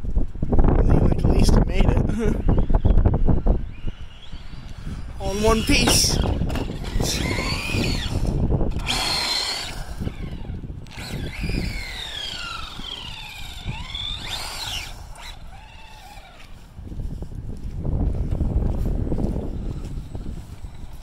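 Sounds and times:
toy truck electric motor whining: 2.6 - 16.6.

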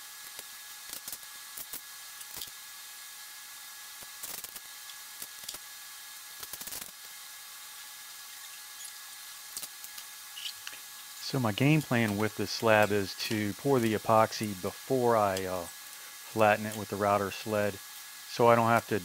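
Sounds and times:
background hiss: 8.2 - 19.0.

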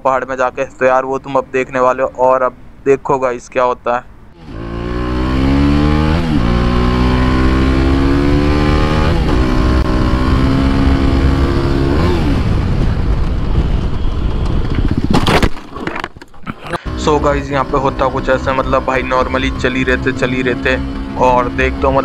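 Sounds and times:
motorcycle engine accelerating: 4.4 - 15.2, 16.8 - 22.0
wind noise: 10.7 - 16.9.

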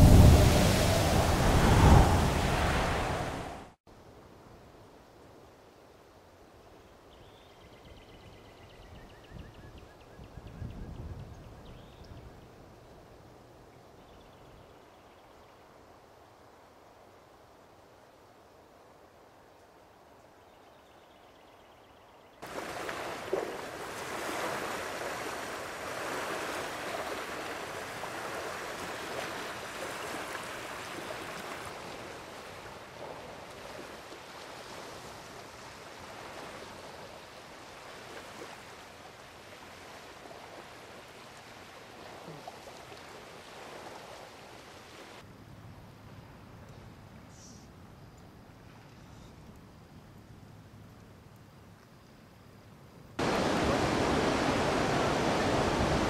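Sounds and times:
floodwater rushing and churning: 0.0 - 3.8, 22.4 - 45.2, 53.2 - 56.0.

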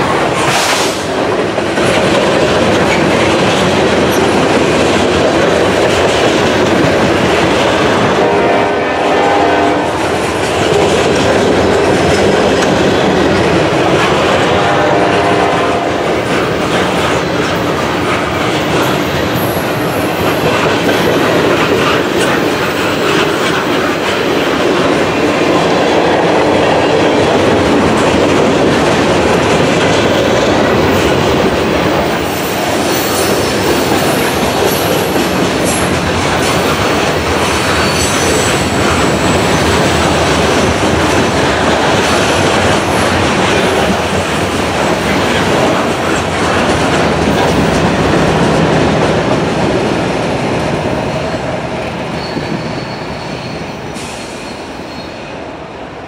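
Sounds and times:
clickety-clack over rail joints: 0.0 - 8.8, 9.7 - 54.4
freight train wheels rumbling: 0.0 - 56.0
high wheel squeal: 32.2 - 35.9, 37.4 - 39.6, 52.1 - 55.3.

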